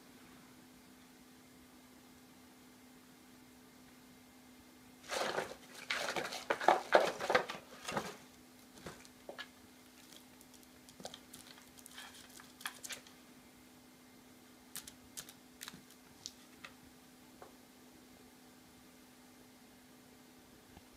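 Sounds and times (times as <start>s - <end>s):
cat scratching cardboard box: 5.1s - 8.2s
candy clicking and tapping: 9.0s - 13.1s, 14.7s - 16.8s.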